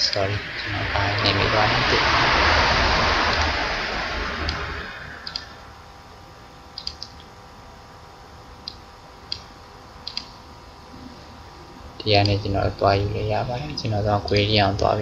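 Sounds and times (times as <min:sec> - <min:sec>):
faint electrical hum: 0:00.0 - 0:15.0
computer mouse clicks: 0:05.2 - 0:05.5, 0:06.8 - 0:07.3, 0:08.6 - 0:10.4.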